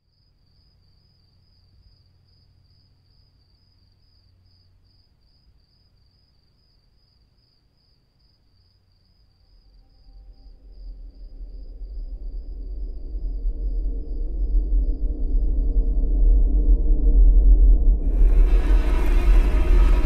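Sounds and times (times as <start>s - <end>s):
low hum: 9.5s - 20.0s
high-pitched pulsing trill: 18.0s - 20.0s.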